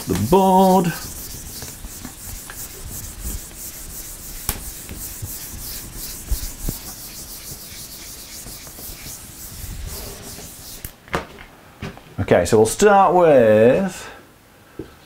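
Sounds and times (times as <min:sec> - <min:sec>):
eraser rubbing whiteboard: 0:00.0 - 0:10.9.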